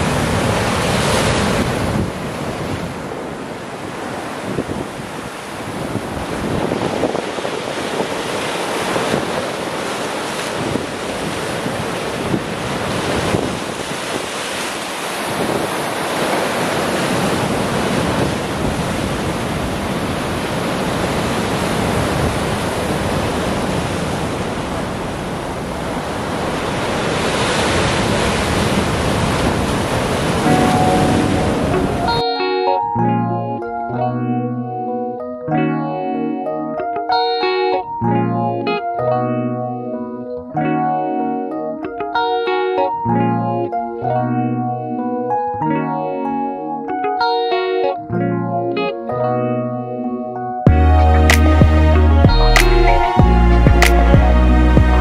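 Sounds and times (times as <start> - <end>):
surf washing over rocks: 0.0 - 32.2
wind buffeting the microphone: 0.0 - 32.2.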